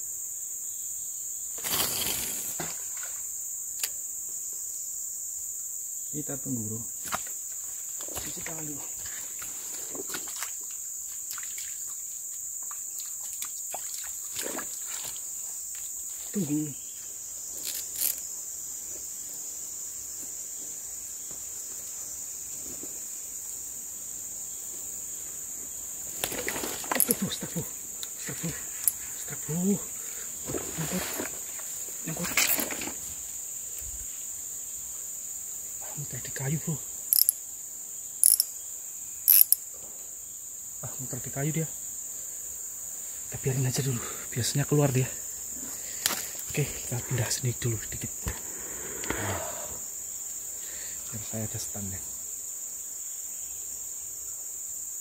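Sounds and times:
insects buzzing: 0:00.0 - 0:55.0.

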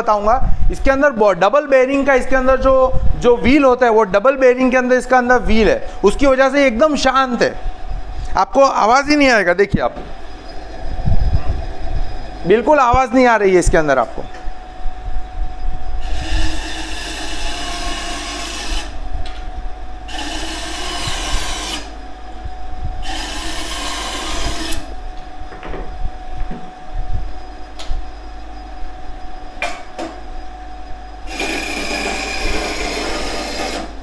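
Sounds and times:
band saw cutting wood: 0:16.0 - 0:19.0, 0:20.1 - 0:21.9, 0:23.0 - 0:24.9, 0:31.3 - 0:34.0.

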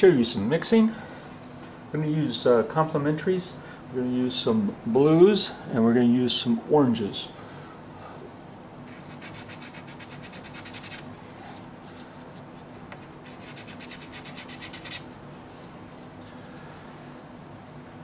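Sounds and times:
pastel scratching on board: 0:08.9 - 0:11.0, 0:12.6 - 0:16.4.

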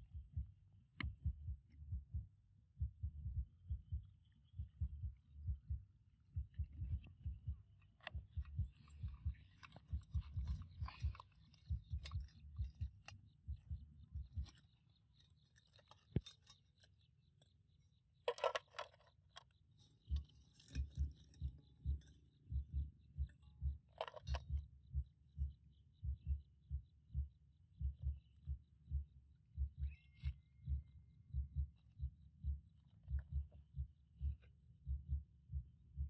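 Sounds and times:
low irregular thumps: 0:00.0 - 0:16.6, 0:18.3 - 0:36.0
crab shells scraping and clacking: 0:18.3 - 0:21.5, 0:24.0 - 0:24.4.

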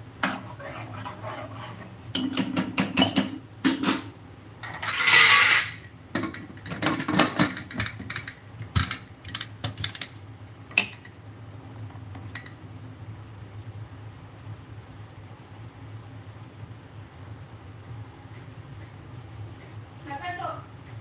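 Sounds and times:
steady low hum: 0:07.6 - 0:21.0.

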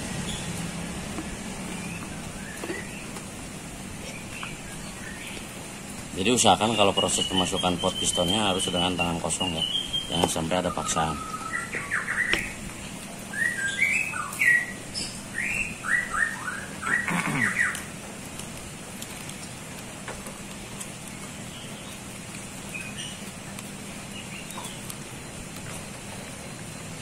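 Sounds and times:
bird chirping: 0:00.0 - 0:03.3, 0:04.0 - 0:17.9, 0:21.1 - 0:23.3, 0:24.0 - 0:25.0.

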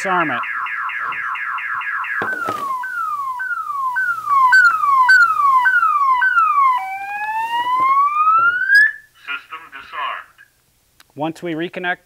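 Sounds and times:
car alarm siren: 0:00.0 - 0:09.1.

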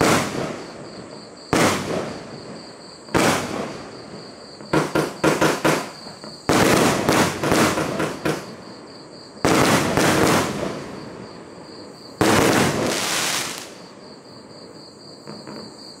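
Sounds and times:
firework shells bursting: 0:00.0 - 0:00.8, 0:01.5 - 0:08.6, 0:09.4 - 0:11.1, 0:12.2 - 0:13.9.

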